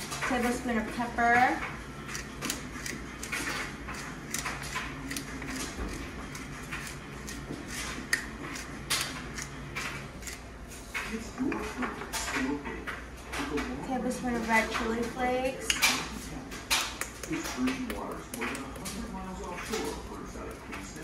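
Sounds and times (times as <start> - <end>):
pepper mill grinding: 2.0 - 10.5.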